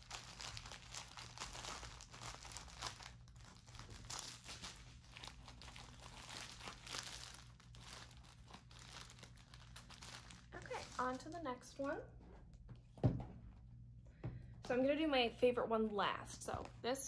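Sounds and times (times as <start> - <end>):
plastic bag crinkling: 0.0 - 12.1.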